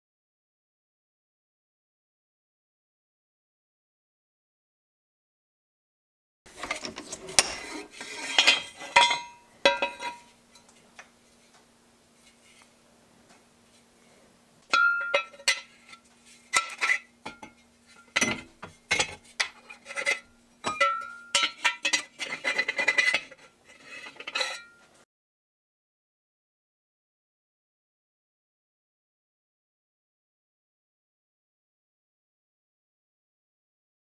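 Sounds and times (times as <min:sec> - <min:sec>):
steel bars clanking: 0:06.5 - 0:10.3, 0:14.7 - 0:15.7, 0:16.5 - 0:24.9
faint steady hum: 0:06.5 - 0:25.0.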